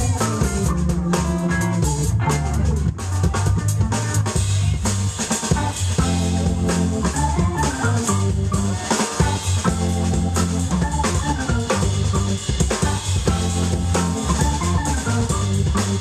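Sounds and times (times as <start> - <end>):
drum kit with cymbals: 0.0 - 16.0
electric guitar: 0.0 - 16.0
organ: 0.0 - 16.0.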